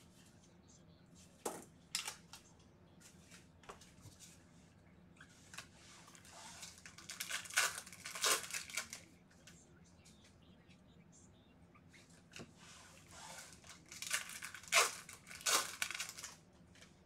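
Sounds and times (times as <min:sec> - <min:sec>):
foil wrapper crinkling: 0:05.6 - 0:09.1, 0:13.4 - 0:16.4.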